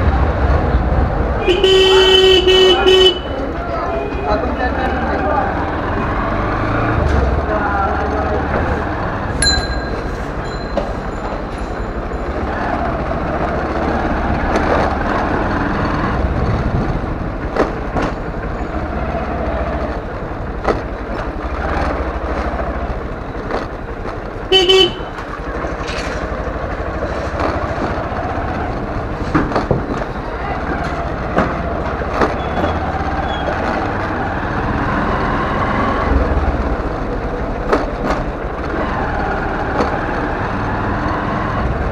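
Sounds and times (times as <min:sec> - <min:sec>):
motorcycle running: 0:00.0 - 0:41.9
motorcycle horn: 0:01.4 - 0:04.4, 0:24.5 - 0:25.2
bell ringing: 0:09.4 - 0:12.5.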